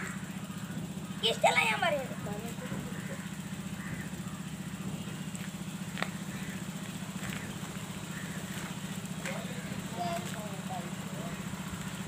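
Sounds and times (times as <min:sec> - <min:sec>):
low fluttering hum: 0:00.0 - 0:12.0.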